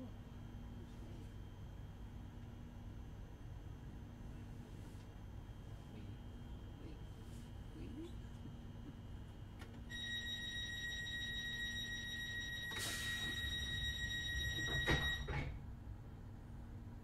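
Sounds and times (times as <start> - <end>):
high warning tone: 9.9 - 15.4.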